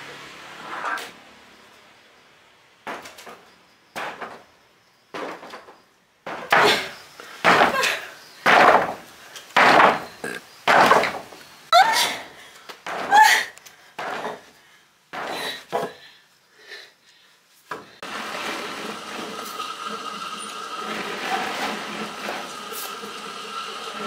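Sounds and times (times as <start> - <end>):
heavy knocks: 8.4 - 9.0, 9.6 - 10.1.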